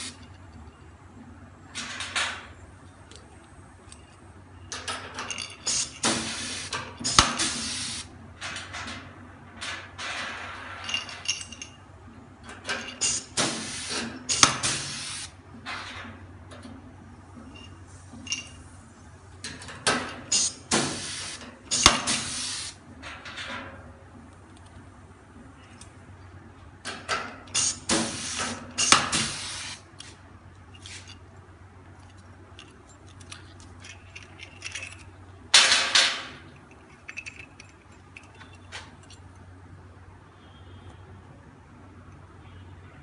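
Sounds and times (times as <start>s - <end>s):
rivet gun air hiss: 5.7s - 8.1s, 13.0s - 15.4s, 20.3s - 22.8s, 27.6s - 30.2s.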